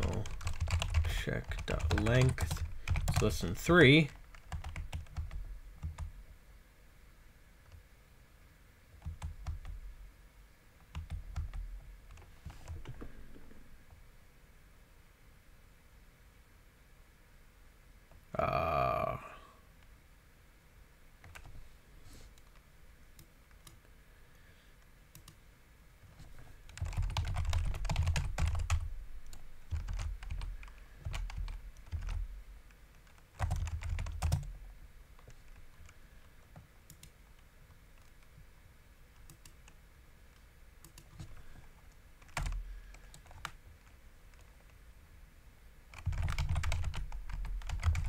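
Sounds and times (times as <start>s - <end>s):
typing on computer keyboard: 0.0s - 3.4s, 4.1s - 6.1s, 9.0s - 9.8s, 10.9s - 13.0s, 21.2s - 21.5s, 26.7s - 32.2s, 32.9s - 34.6s, 42.2s - 43.6s, 45.9s - 48.0s.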